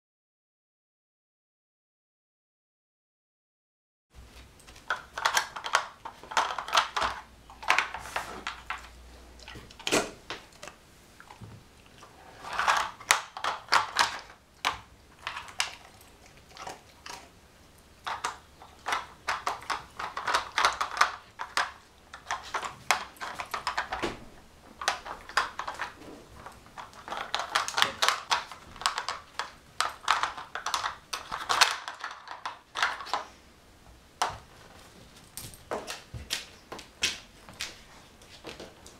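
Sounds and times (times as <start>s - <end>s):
plastic pieces clattering on tray: 24.8s - 33.2s.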